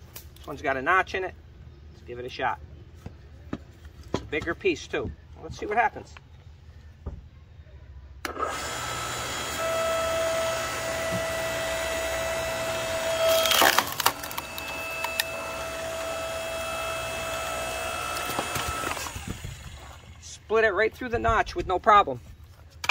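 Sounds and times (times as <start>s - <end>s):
log splitter motor humming: 8.2s - 20.3s
wood cracking and splintering: 13.2s - 16.0s.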